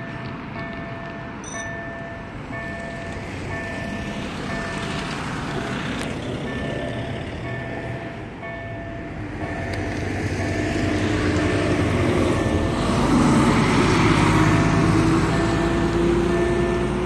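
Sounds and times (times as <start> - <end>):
crossing signal electronic tone: 6.6 - 11.7, 15.3 - 17.0
truck engine passing: 9.2 - 17.0.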